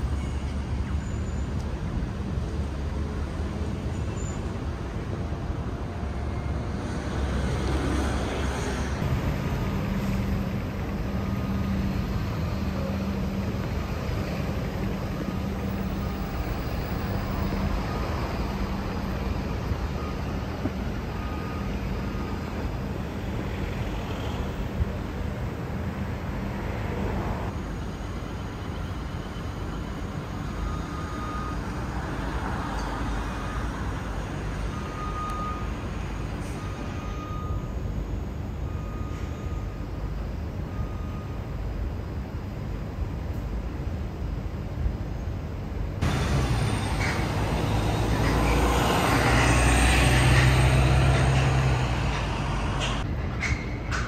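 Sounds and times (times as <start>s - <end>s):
city traffic rumble: 0.0s - 54.0s
heavy vehicle engine passing: 46.0s - 53.2s.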